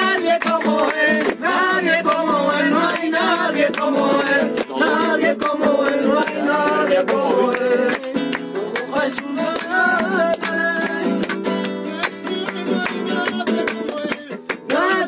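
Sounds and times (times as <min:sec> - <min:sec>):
acoustic guitar strumming: 0:00.0 - 0:15.0
hands clapping in time: 0:00.0 - 0:15.0
men singing together: 0:00.0 - 0:15.0.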